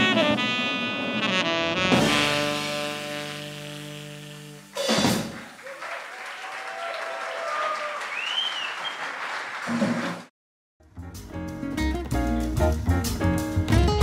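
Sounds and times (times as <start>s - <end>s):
jazz quartet chord: 0.0s - 4.9s
drum and cymbal hit: 4.8s - 5.4s
audience applauding: 5.1s - 10.3s.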